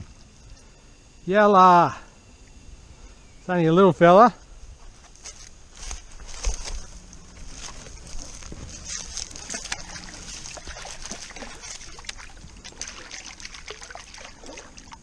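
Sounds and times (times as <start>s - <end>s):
fish splashing in shallow water: 5.9s - 15.0s.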